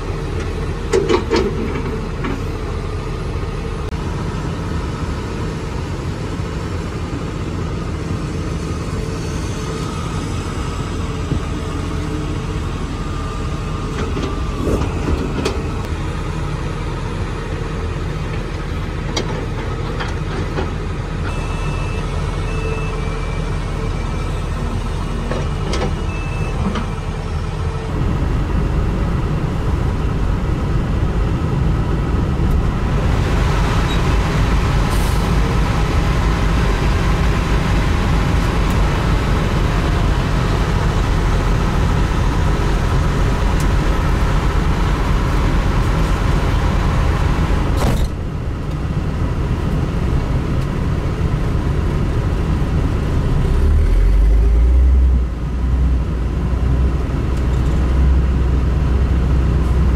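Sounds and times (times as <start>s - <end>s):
excavator diesel engine: 0.0s - 59.9s
truck diesel engine running: 27.0s - 55.5s.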